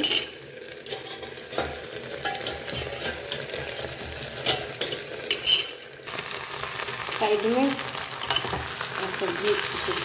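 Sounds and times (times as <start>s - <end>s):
okra sizzling in a pan: 0.0s - 10.0s
utensil scraping a pan: 0.8s - 5.8s.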